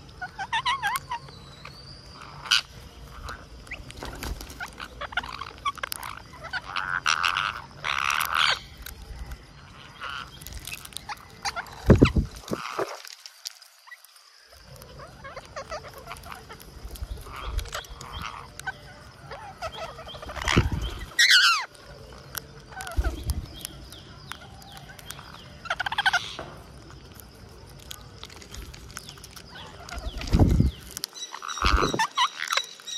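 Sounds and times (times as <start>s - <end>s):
parakeet screeching and squawking: 0.2s - 8.8s, 9.7s - 12.8s, 14.8s - 21.8s, 24.9s - 26.6s, 28.2s - 32.9s
beaks cracking peanut shells: 3.6s - 13.8s, 14.5s - 32.9s.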